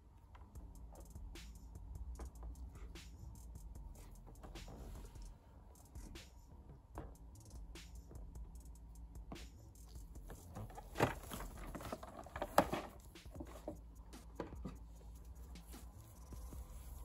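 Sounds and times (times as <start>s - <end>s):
blister pack rustling and clicking: 10.5s - 13.8s.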